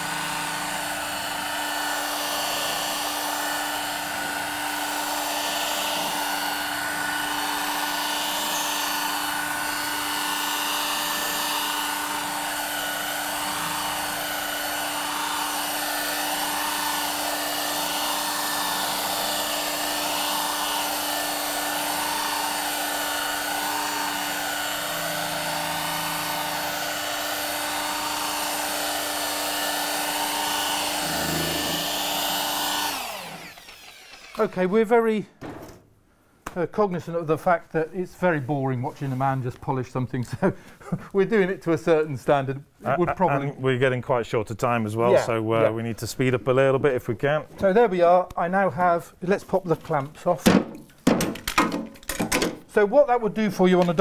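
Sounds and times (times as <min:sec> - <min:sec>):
electric rotary polisher running: 0:00.0 - 0:34.6.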